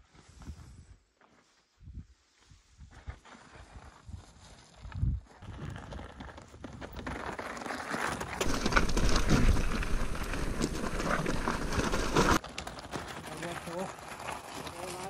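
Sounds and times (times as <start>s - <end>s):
bike tyres crunching on gravel: 5.4s - 15.0s.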